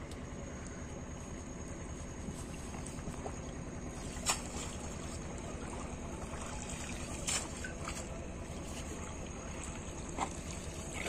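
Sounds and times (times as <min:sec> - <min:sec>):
steady background noise: 0:00.0 - 0:11.0
water splashing and trickling: 0:02.2 - 0:11.0
sharp water splashes: 0:04.0 - 0:08.1.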